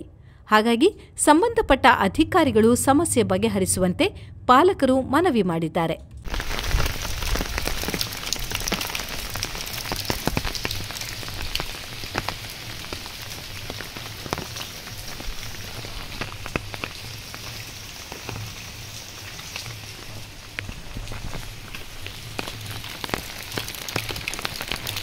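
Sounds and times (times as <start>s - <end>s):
rain drops ticking: 6.2s - 25.0s.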